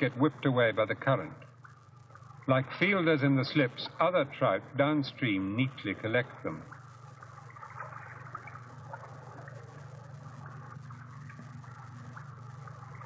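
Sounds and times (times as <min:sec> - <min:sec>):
steady low hum: 0:00.0 - 0:13.0
small ticks: 0:01.4 - 0:02.5
stream water trickling: 0:06.6 - 0:13.0.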